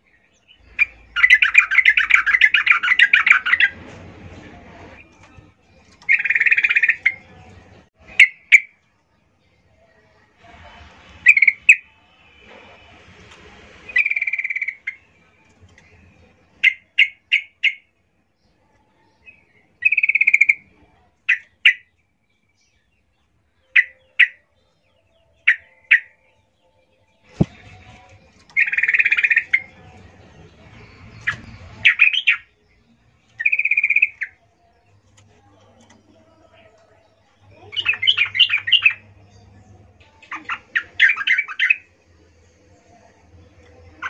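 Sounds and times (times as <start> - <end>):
bird chirping and rattling: 0.6 - 8.7, 27.2 - 36.9.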